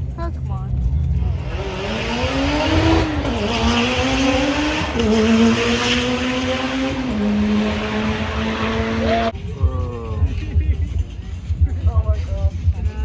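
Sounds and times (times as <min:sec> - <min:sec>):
race car engine accelerating: 0:01.2 - 0:09.4.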